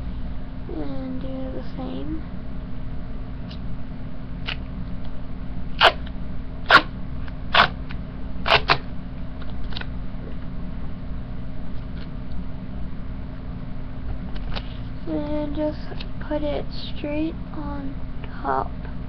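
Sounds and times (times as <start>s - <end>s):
steady low hum: 0.0s - 19.0s
duct tape snapping: 5.8s - 9.9s.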